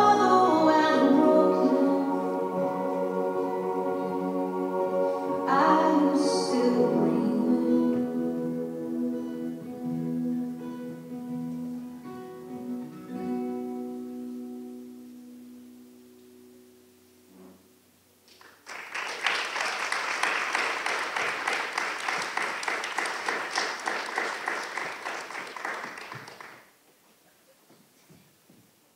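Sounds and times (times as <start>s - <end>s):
acoustic guitar notes ringing: 0.0s - 18.0s
audience applause: 18.3s - 26.7s.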